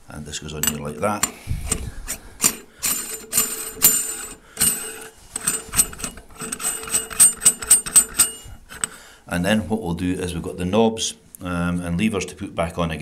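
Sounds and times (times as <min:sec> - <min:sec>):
metal parts clinking and scraping: 0:00.6 - 0:09.0.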